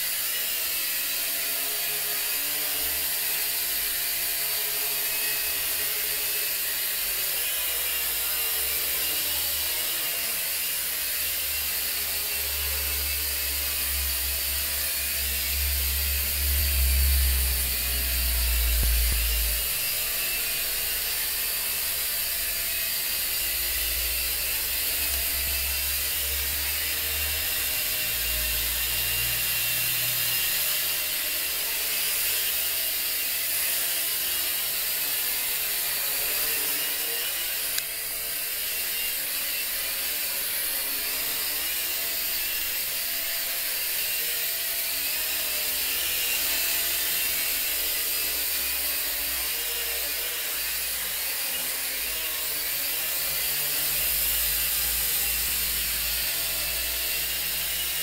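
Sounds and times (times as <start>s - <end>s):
quadcopter propellers buzzing: 0.0s - 58.0s
low rumble: 14.0s - 19.7s.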